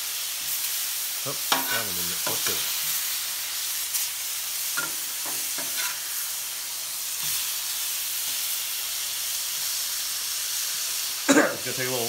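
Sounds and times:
steaks sizzling on griddle: 0.0 - 12.0
metal spatula scraping griddle: 4.8 - 6.0.

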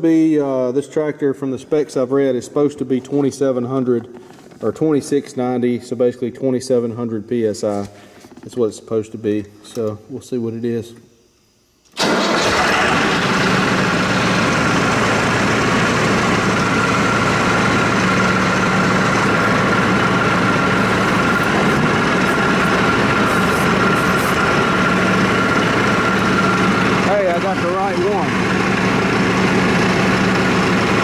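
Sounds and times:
hydraulic high whine: 11.0 - 31.0
tractor diesel engine idling: 12.0 - 31.0.

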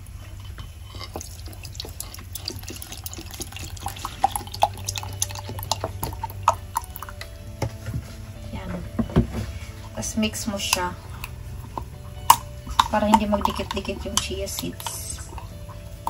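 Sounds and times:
steady low hum: 0.0 - 16.0
milk pouring into a jar: 1.1 - 7.2
bubbling blips: 1.2 - 7.5, 10.6 - 16.0.

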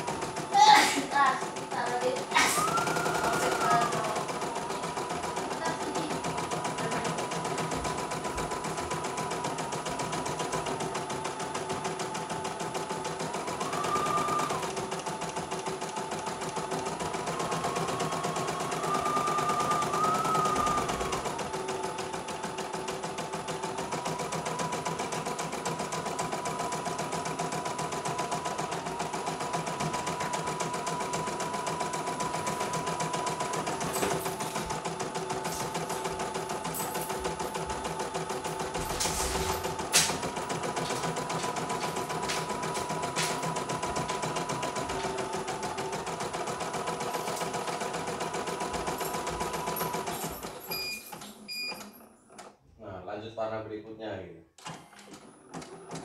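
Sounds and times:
embroidery machine needle chatter: 0.0 - 51.9
motor whine: 13.1 - 24.5.

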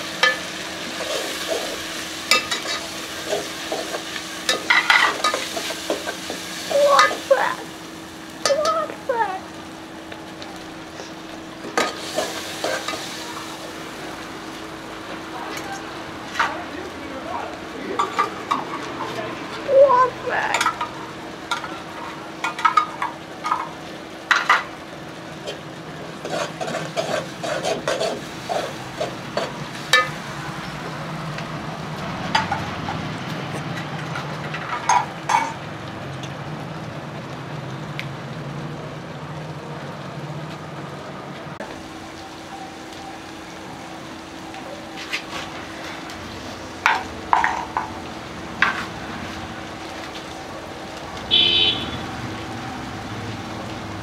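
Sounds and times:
masala sizzling in metal pot: 0.0 - 54.0
spoon scraping a pot: 26.2 - 29.5.

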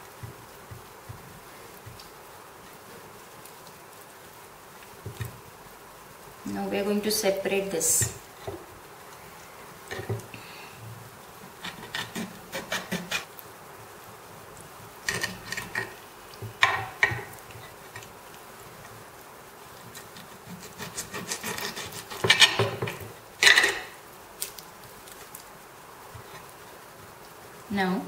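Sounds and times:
knife sawing through meat: 11.7 - 13.3, 20.3 - 22.6.

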